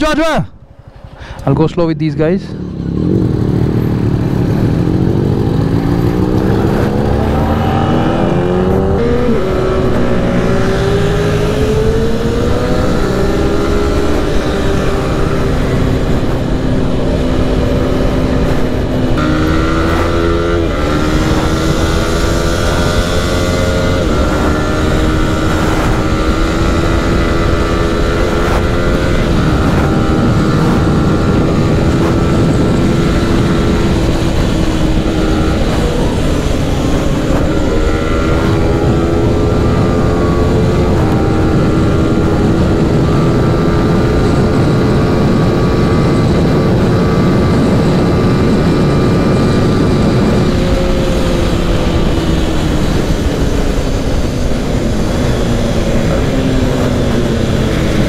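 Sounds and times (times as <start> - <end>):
motorcycle engine accelerating: 2.4 - 58.0
wind rush: 2.6 - 58.0.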